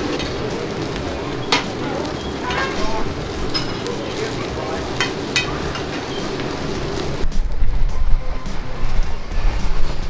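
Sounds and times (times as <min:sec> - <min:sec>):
omelette sizzling in a pan: 0:00.0 - 0:07.2
music with pulsing bass beat: 0:07.2 - 0:10.0.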